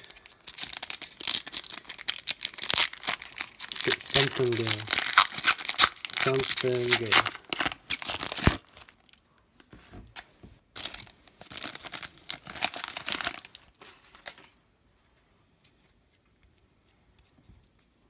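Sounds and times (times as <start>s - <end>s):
foil wrapper tearing and crinkling: 0.0s - 9.1s, 10.8s - 13.6s.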